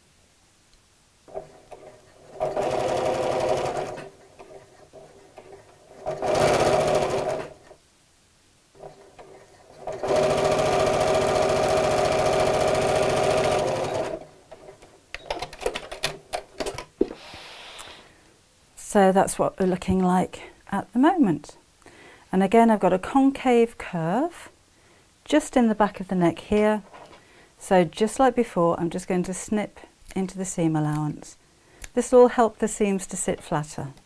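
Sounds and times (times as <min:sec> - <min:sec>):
sewing machine stitching: 0:01.3 - 0:07.8, 0:08.8 - 0:16.0.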